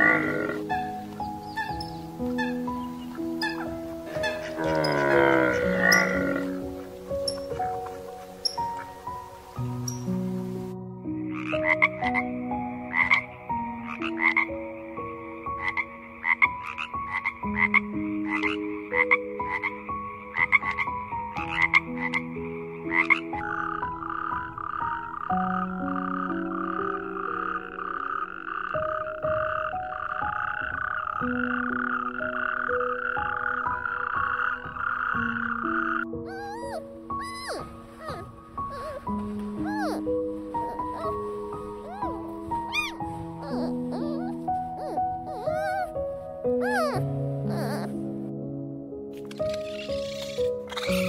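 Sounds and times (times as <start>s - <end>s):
toad trilling: 0.0s - 7.8s, 22.9s - 48.0s, 49.1s - 51.0s
frogs croaking: 0.0s - 48.2s, 49.0s - 51.0s
soft background music: 0.0s - 51.0s.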